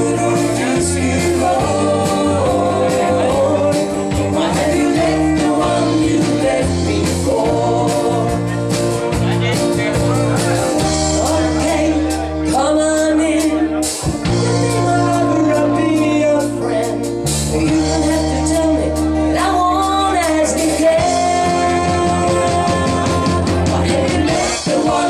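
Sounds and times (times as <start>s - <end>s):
woman singing: 0.0s - 8.6s, 11.0s - 25.0s
country band playing: 0.0s - 25.0s.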